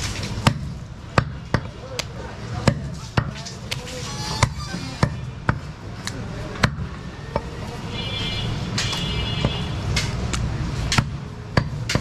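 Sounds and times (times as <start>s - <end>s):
cleaver chopping meat and bone: 0.3s - 3.4s, 4.4s - 7.5s, 8.9s - 12.0s.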